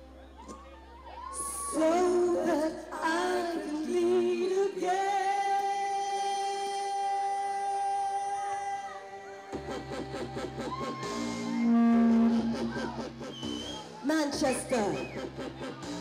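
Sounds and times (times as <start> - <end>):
woman singing into microphone: 1.3 - 9.6.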